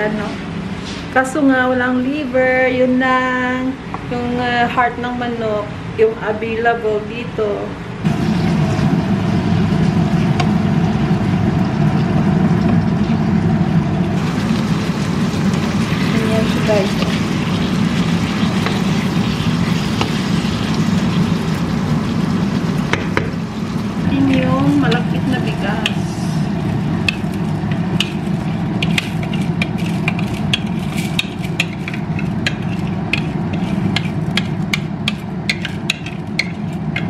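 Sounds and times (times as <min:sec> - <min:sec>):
meat sizzling in a frying pan: 0:14.1 - 0:33.5
wooden spatula stirring: 0:26.9 - 0:37.0
metal spoon scraping bowl: 0:28.0 - 0:37.0.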